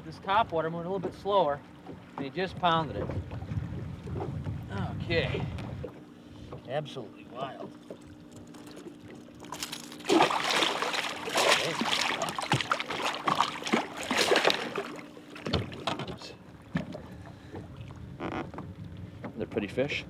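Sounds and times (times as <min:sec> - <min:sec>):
fish thrashing and splashing: 0:07.8 - 0:18.0.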